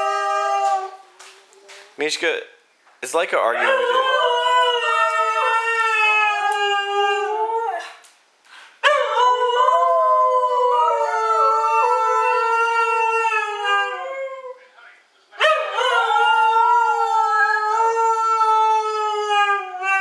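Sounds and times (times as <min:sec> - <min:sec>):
husky howling: 0:00.0 - 0:01.1, 0:03.6 - 0:07.9, 0:08.8 - 0:14.6, 0:15.4 - 0:20.0.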